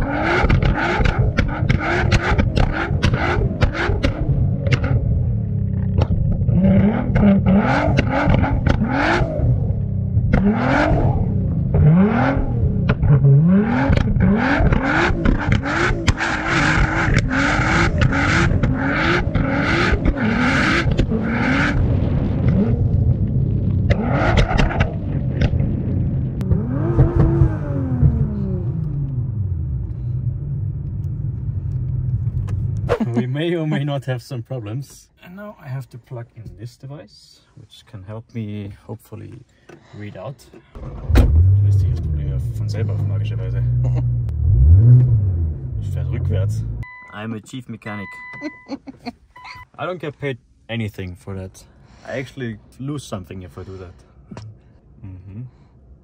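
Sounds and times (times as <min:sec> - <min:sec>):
exhaust pops and bangs: 0:00.0 - 0:05.1, 0:05.7 - 0:09.2, 0:10.1 - 0:10.6, 0:11.5 - 0:13.2, 0:13.8 - 0:28.3, 0:40.8 - 0:42.1
car engine revving hard: 0:00.0 - 0:05.3, 0:06.5 - 0:22.9, 0:23.9 - 0:25.0, 0:26.4 - 0:28.9, 0:40.8 - 0:46.8.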